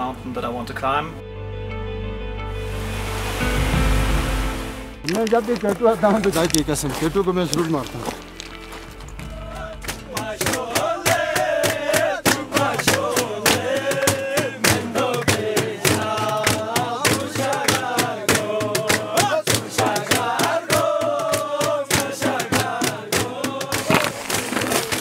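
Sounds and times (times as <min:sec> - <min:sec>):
men singing together: 0:09.2 - 0:24.2
hand-clapping: 0:09.5 - 0:24.1.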